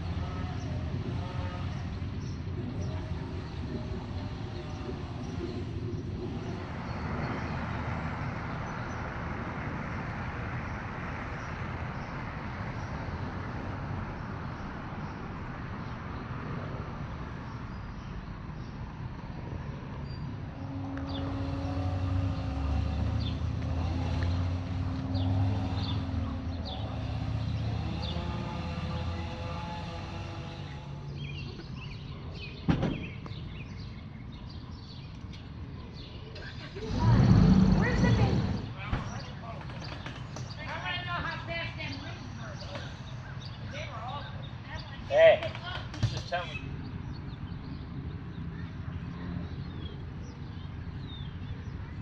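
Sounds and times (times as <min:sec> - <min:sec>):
engine running with low hum: 0:00.0 - 0:40.6
traffic rushing by: 0:00.0 - 0:52.0.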